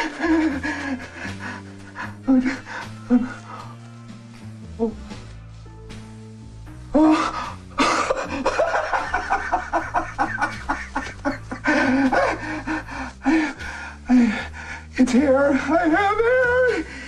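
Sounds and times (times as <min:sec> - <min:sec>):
low music score: 0:00.0 - 0:17.0.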